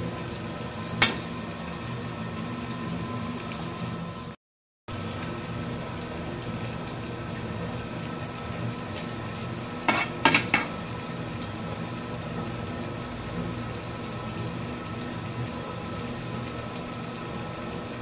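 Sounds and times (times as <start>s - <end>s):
greens sizzling in a pan: 4.9s - 18.0s.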